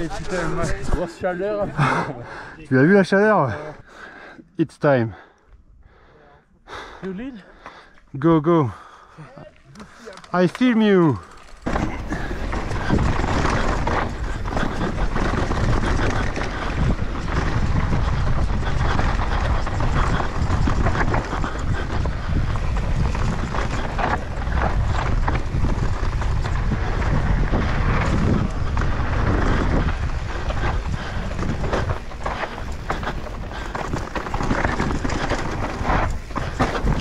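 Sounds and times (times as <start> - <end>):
bike tyre noise: 9.6 - 37.0
bike rattling knocks: 11.1 - 17.8, 30.6 - 37.0
wind rumbling on microphone: 11.6 - 37.0.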